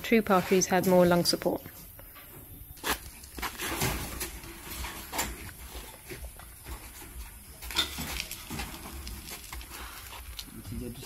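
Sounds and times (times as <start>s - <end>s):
wire-mesh gate clanking and rattling: 3.4s - 5.8s, 6.9s - 9.6s.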